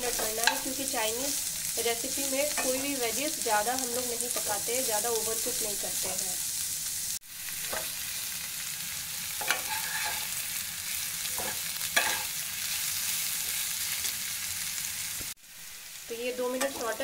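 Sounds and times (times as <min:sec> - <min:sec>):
vegetables sizzling in hot oil: 0:00.0 - 0:17.0
spatula scraping a wok: 0:06.0 - 0:08.2, 0:09.2 - 0:15.1.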